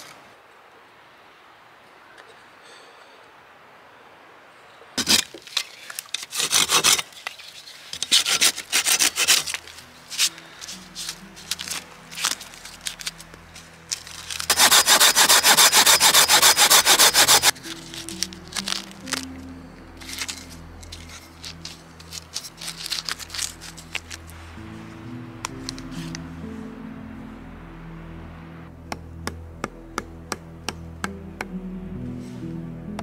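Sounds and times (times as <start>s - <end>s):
hand saw cutting wood: 6.2s - 7.2s, 8.0s - 10.3s, 14.3s - 17.6s.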